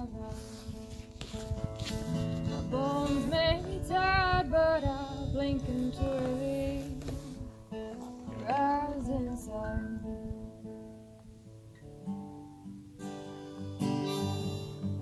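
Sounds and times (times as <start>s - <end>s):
woman singing: 0.0s - 0.8s, 2.6s - 7.5s, 8.3s - 10.4s
guitar: 0.0s - 15.0s.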